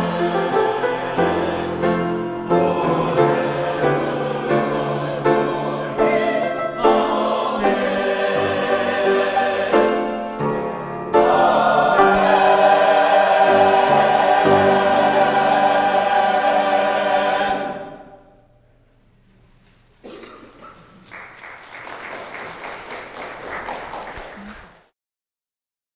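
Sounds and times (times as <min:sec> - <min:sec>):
mixed choir singing: 0:00.0 - 0:18.4
piano: 0:00.0 - 0:18.5.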